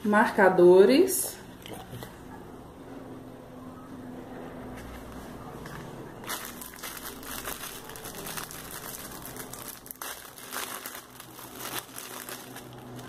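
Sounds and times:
plastic wrapping crinkling: 6.2s - 13.0s.

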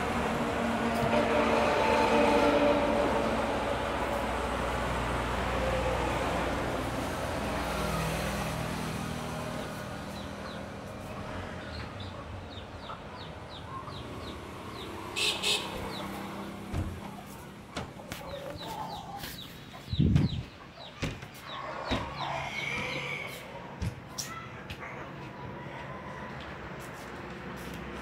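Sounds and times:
chickens clucking: 10.1s - 14.3s, 16.9s - 26.5s.

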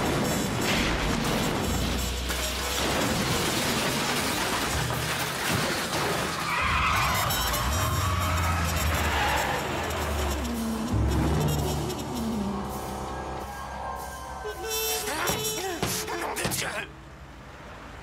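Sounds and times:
action movie music: 0.0s - 4.8s, 6.4s - 16.9s
wreckage falling: 0.6s - 9.0s.

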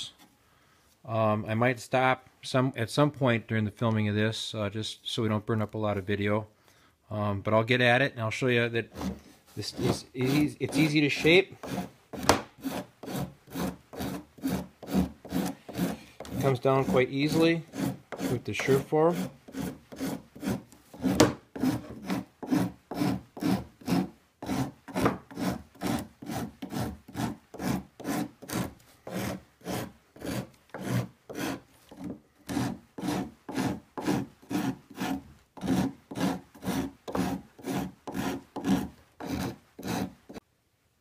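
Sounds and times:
rasp filing cork: 8.9s - 40.4s.

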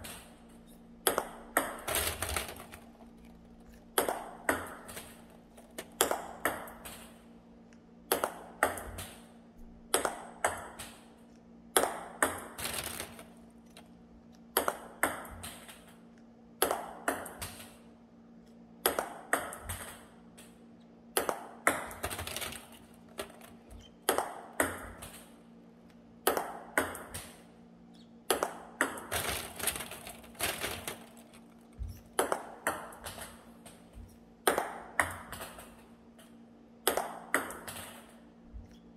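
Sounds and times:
faint low hum: 0.0s - 38.9s
table tennis balls knocking: 1.0s - 7.1s, 8.1s - 9.2s, 9.9s - 11.0s, 11.8s - 13.3s, 14.5s - 16.0s, 16.6s - 17.7s, 18.8s - 20.5s, 21.2s - 25.3s, 26.3s - 27.4s, 28.3s - 35.8s, 36.8s - 38.8s.

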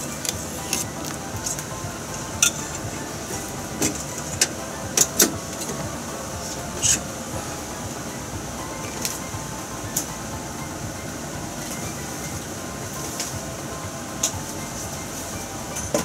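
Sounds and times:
steady hiss: 0.0s - 16.0s.

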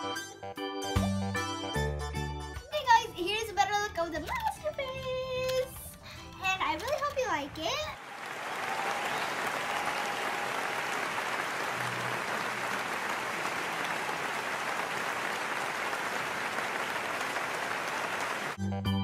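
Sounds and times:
crowd applauding: 7.8s - 18.6s.

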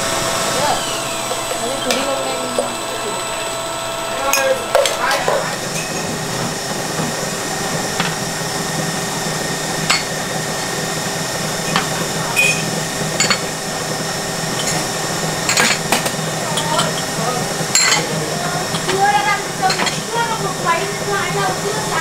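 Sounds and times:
kitchen hum: 0.0s - 22.0s
ceramic cups clinking: 1.2s - 3.4s, 4.2s - 8.6s, 9.8s - 10.8s, 11.6s - 13.7s, 14.4s - 21.2s.

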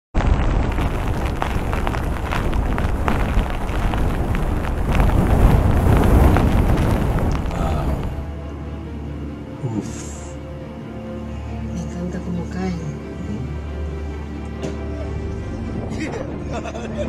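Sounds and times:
storm wind buffeting microphone: 0.2s - 8.3s.

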